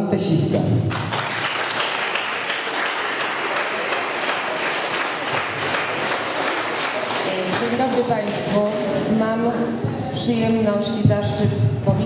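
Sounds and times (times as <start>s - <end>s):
audience applauding: 0.9s - 9.0s.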